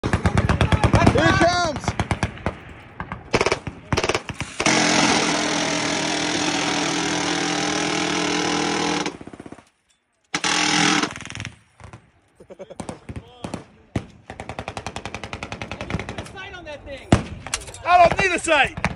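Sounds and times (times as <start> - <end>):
minigun firing: 3.3 - 9.4, 10.3 - 11.6.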